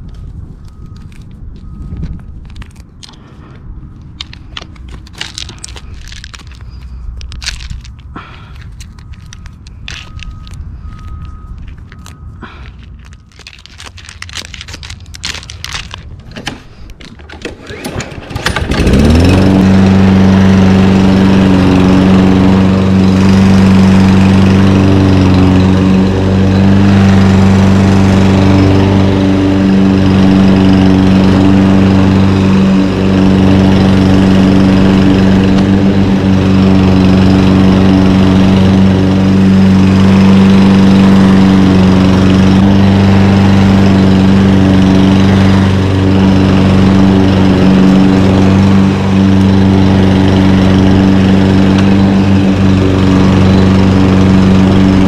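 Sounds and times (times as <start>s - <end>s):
hands pulling weeds among rocks: 2.0s - 17.2s
lawn mower engine running: 2.5s - 55.0s.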